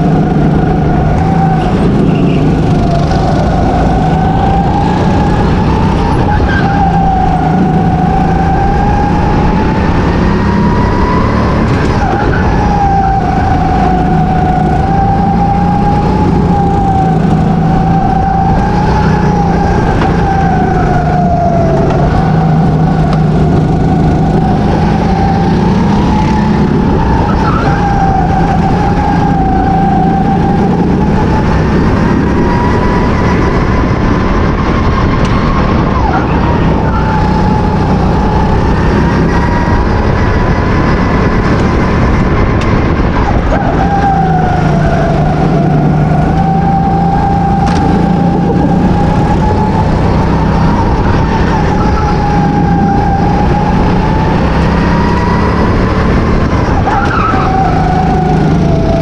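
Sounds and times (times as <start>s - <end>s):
go-kart engine at high revs: 0.0s - 59.0s.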